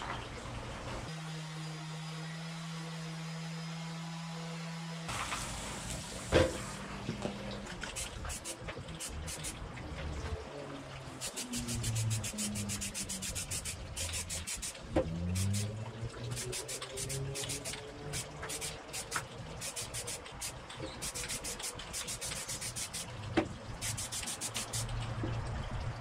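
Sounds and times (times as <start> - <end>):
spray can ball rattling: 7.8 - 9.6, 11.2 - 15.7, 16.3 - 23.1, 23.8 - 25.0
spray paint can hissing: 7.8 - 9.6, 11.2 - 23.1, 23.8 - 25.0.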